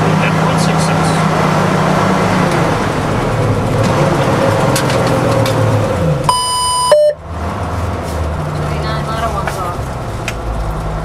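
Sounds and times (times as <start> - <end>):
diesel engine running under load: 0.0 - 11.0
high electronic beep: 6.3 - 7.2.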